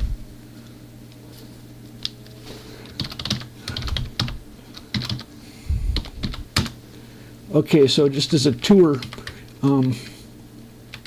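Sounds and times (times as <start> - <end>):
faint low steady hum: 0.0 - 11.0
computer keyboard typing: 2.9 - 5.3, 6.0 - 6.8, 8.6 - 10.0.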